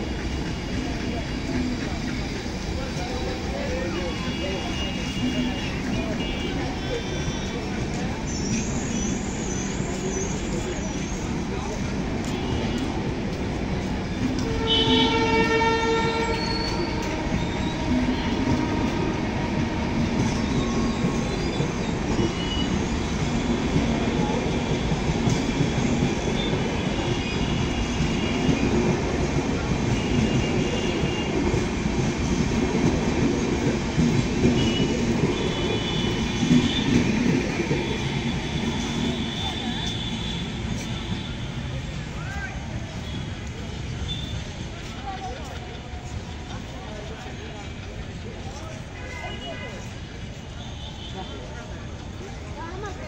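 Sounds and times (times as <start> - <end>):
train coaches rumbling past: 0.0 - 53.0
high wheel squeals: 4.0 - 11.4, 15.9 - 18.5
train horn: 14.3 - 20.4, 29.8 - 31.7, 34.4 - 37.2, 37.8 - 41.6.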